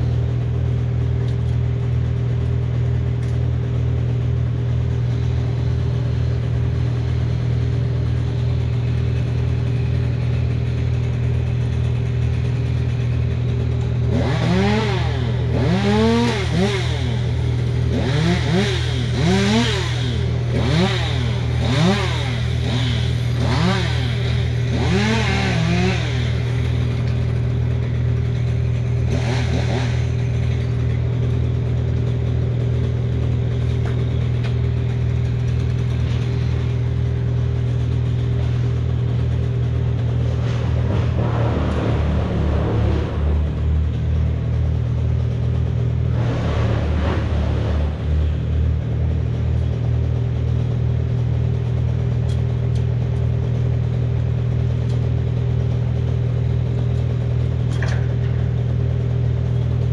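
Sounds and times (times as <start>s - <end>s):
engine humming: 0.0s - 59.9s
chainsaw revving: 6.7s - 48.8s.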